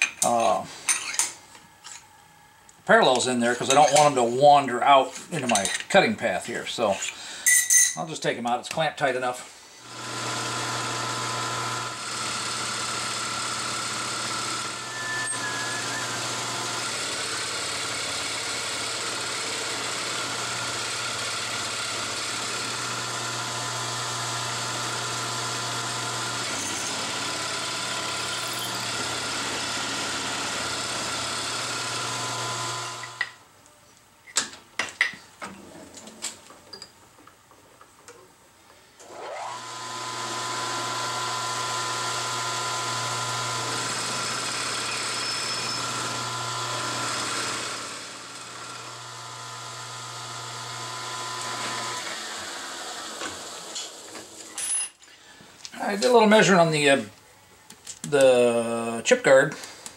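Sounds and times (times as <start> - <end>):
milling machine spindle whining: 9.9 - 33.4, 39.0 - 54.5.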